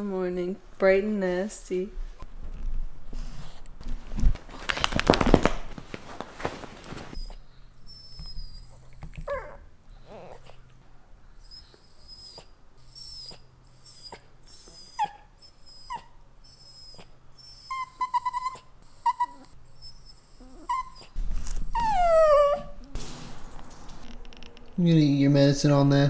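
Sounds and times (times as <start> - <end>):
dog whimpering: 7.2 - 10.6, 11.4 - 22.9
dog crying falling in pitch: 21.8 - 22.8.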